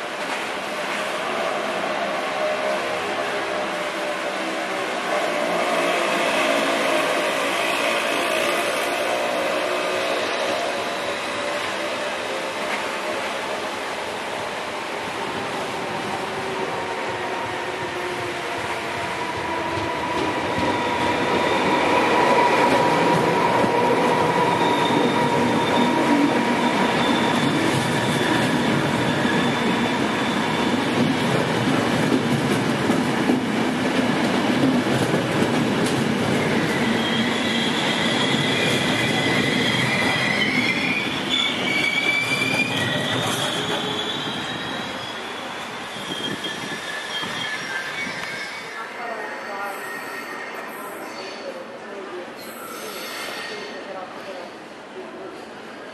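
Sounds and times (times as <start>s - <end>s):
train rolling past: 0.0s - 55.8s
wheel squeal: 36.4s - 48.8s.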